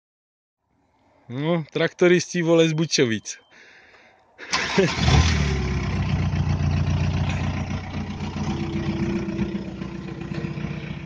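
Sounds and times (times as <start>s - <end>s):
diesel engine idling: 4.5s - 11.0s.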